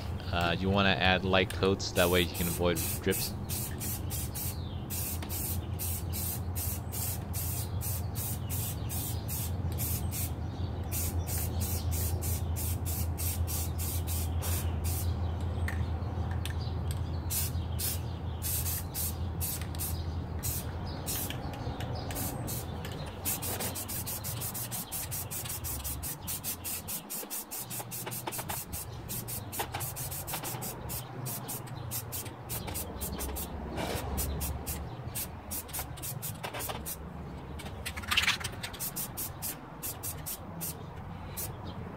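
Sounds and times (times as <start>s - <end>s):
spray can hissing: 2.0s - 10.3s, 10.9s - 15.1s, 17.3s - 21.4s, 22.1s - 37.0s, 38.7s - 40.8s.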